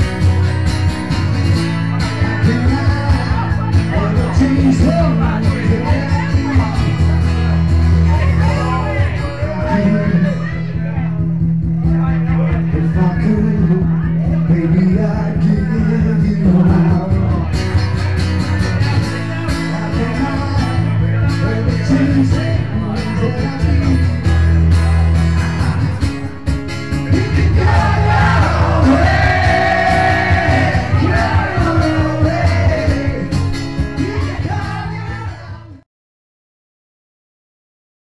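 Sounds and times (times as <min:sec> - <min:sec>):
acoustic guitar and bass: 0:00.0 - 0:35.8.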